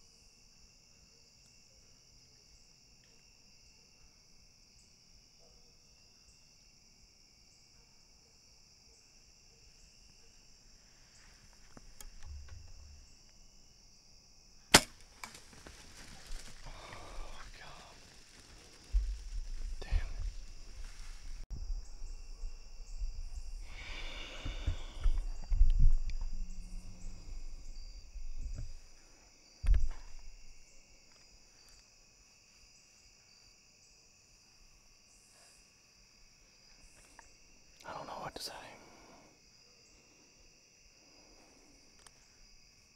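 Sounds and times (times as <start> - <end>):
crickets and insects chirping: 0.0 - 42.9
sharp knock: 14.7 - 15.0
sharp crack of bow shot: 14.7 - 15.4.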